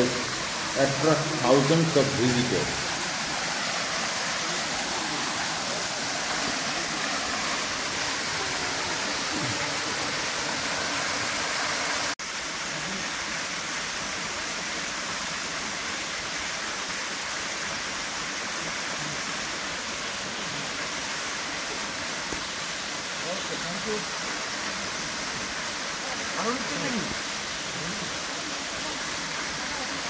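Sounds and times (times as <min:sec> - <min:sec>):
waterfall rushing: 0:00.0 - 0:30.0.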